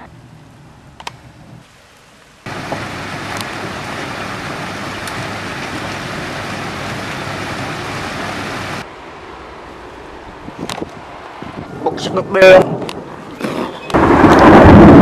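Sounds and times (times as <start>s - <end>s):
heavy rain falling: 1.6s - 10.0s, 11.9s - 15.0s.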